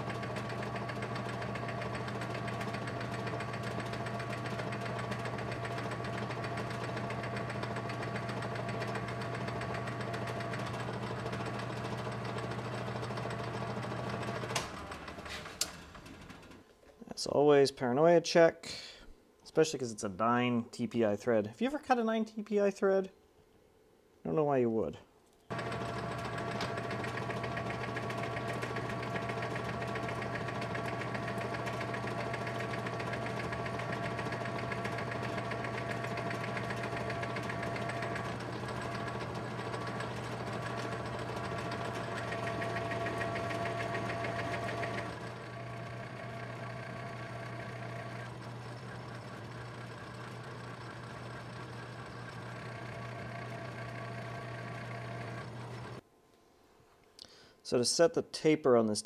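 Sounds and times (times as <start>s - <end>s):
metal lathe humming and whining: 0.0s - 15.7s, 25.5s - 56.0s.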